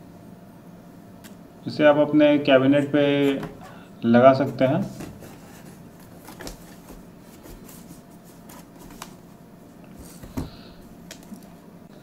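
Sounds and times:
cardboard box scraping and tapping: 0:04.9 - 0:09.1.

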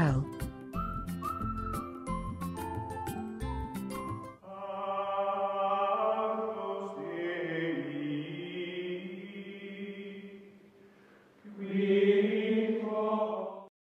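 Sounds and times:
chant-like vocal music: 0:04.4 - 0:10.6, 0:11.4 - 0:13.7.

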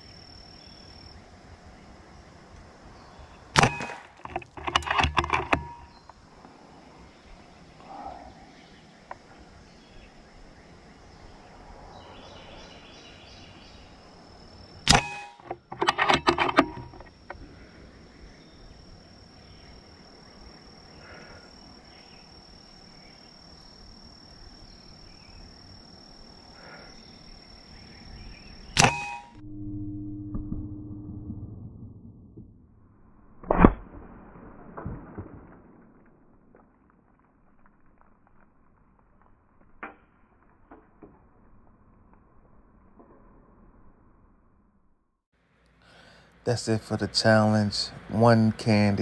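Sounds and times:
air rifle shot cracking: 0:03.6 - 0:04.2
rattle of lever clicks: 0:03.6 - 0:06.0, 0:14.9 - 0:17.2.

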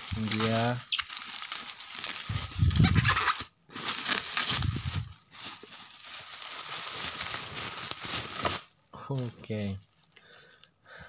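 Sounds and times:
bubble wrap crinkling: 0:00.0 - 0:10.7.

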